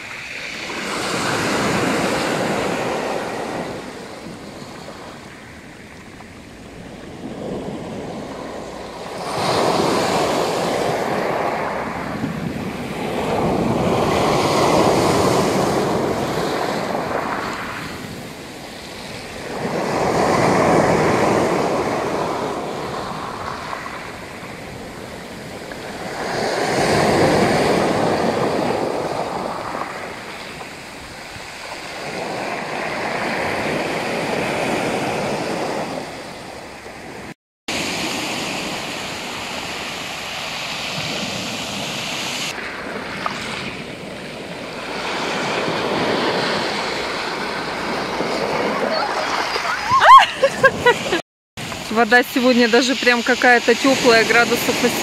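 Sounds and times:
surf breaking on stony beach: 0:00.0 - 0:55.0.

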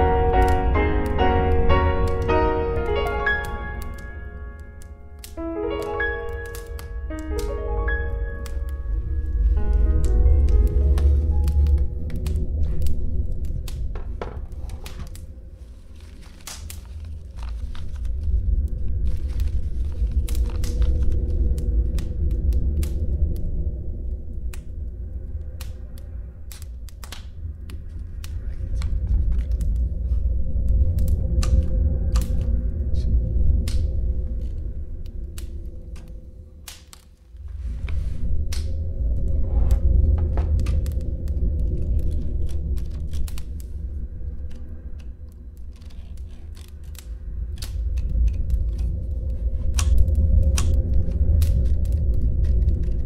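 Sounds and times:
crumpled paper crinkling: 0:00.0 - 0:23.1, 0:40.0 - 0:53.0
low rumble: 0:00.0 - 0:53.0
low steady drone: 0:00.0 - 0:53.0
typewriter keys clacking: 0:00.4 - 0:08.9.

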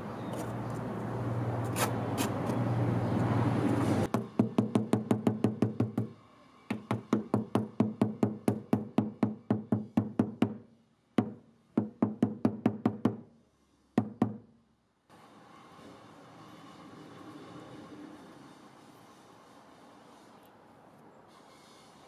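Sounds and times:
rubber mallet knocking on wood: 0:04.2 - 0:06.1, 0:06.7 - 0:10.6, 0:11.2 - 0:13.2, 0:14.0 - 0:14.4.

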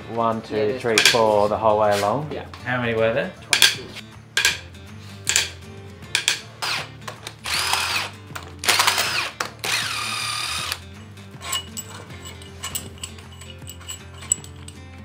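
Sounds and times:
metallic clicks and clinks: 0:04.4 - 0:04.7, 0:05.3 - 0:05.6, 0:06.2 - 0:06.4, 0:11.4 - 0:15.0
impact wrench whirring: 0:06.2 - 0:10.8.

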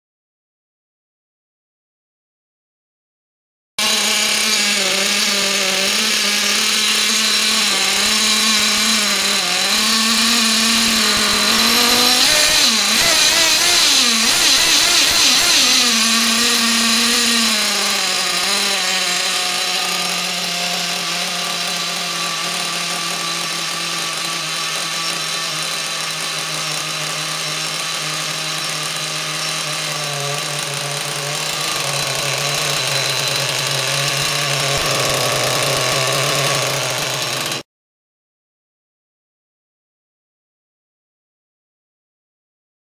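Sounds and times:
model nitro engine revving: 0:03.8 - 0:37.7.

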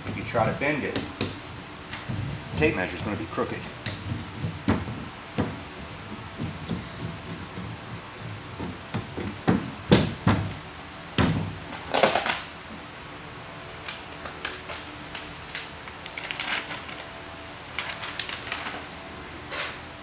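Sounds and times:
scraping rustles: 0:00.0 - 0:09.9, 0:14.6 - 0:19.9
knocks and thumps: 0:03.9 - 0:10.6.

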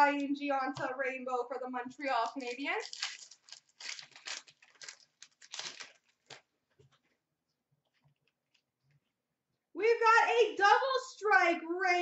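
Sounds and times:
wrapper tearing and crinkling: 0:02.2 - 0:06.5.

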